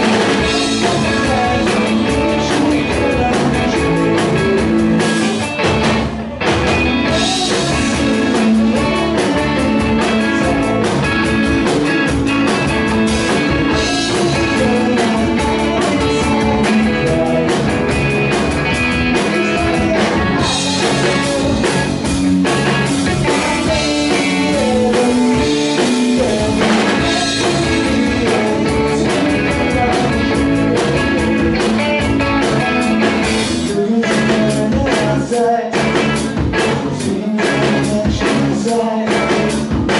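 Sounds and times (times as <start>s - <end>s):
bass guitar: 0.0s - 39.9s
drum kit: 0.0s - 39.9s
electric guitar: 0.0s - 39.9s.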